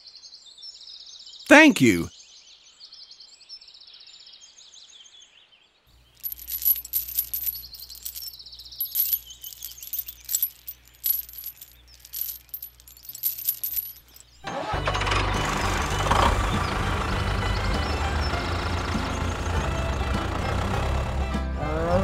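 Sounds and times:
faint birds chirping: 0:06.0 - 0:14.4
small metal chain clinking: 0:06.0 - 0:14.4.

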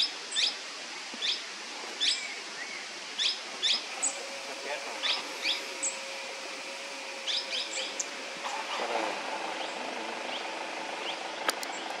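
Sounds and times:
parakeet high calls: 0:05.0 - 0:06.2, 0:07.2 - 0:11.3.

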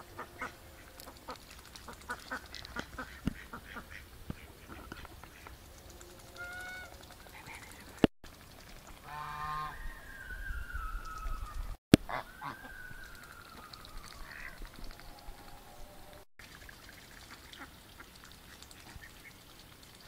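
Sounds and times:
geese honking: 0:00.0 - 0:08.0, 0:09.0 - 0:09.8, 0:12.0 - 0:16.2
ducks calling: 0:00.0 - 0:08.1, 0:08.9 - 0:16.2.

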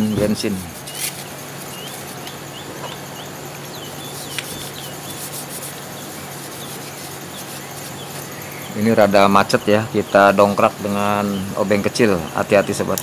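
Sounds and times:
tissue scrubbing on metal: 0:00.0 - 0:09.0
faint steady hum: 0:00.0 - 0:13.0.

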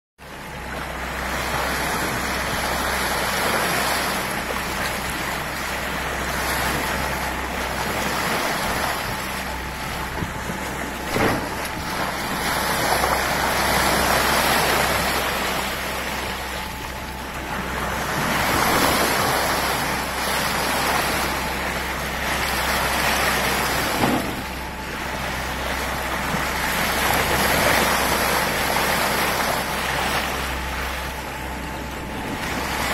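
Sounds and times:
steady low hum: 0:00.2 - 0:32.9
water splashing along boat hull: 0:00.2 - 0:32.9
wind buffeting microphone: 0:07.3 - 0:15.9.

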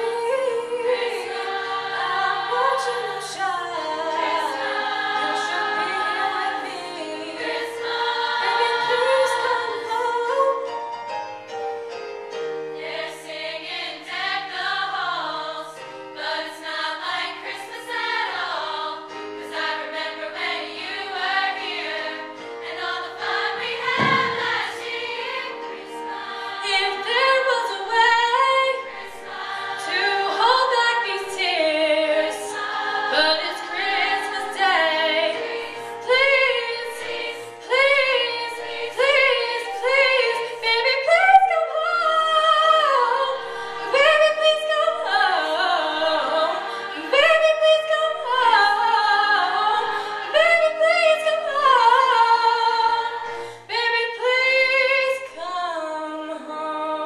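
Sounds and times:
choir holding notes: 0:00.0 - 0:57.0.

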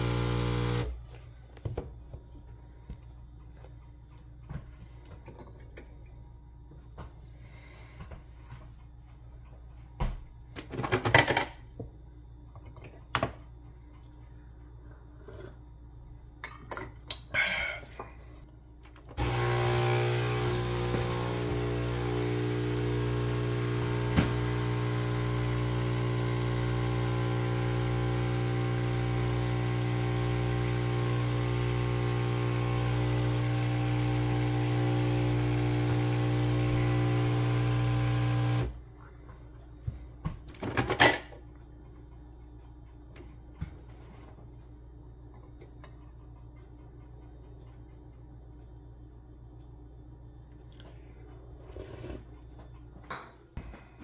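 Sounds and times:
espresso machine pump humming: 0:00.0 - 0:01.1, 0:19.2 - 0:38.8.

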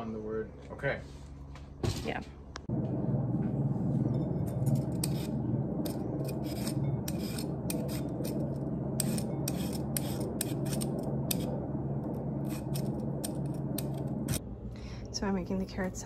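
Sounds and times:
steady low hum: 0:00.0 - 0:16.0
peeler scraping carrot: 0:04.8 - 0:11.5, 0:12.4 - 0:14.0.

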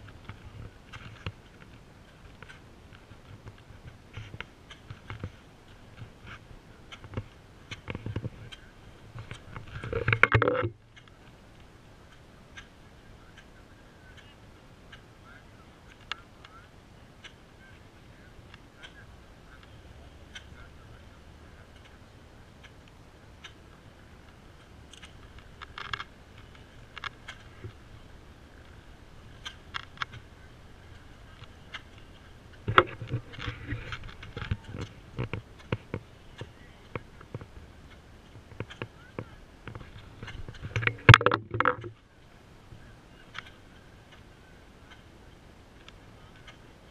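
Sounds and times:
open-air background noise: 0:00.0 - 0:46.9
soft ticks: 0:18.5 - 0:20.7, 0:30.9 - 0:41.9.

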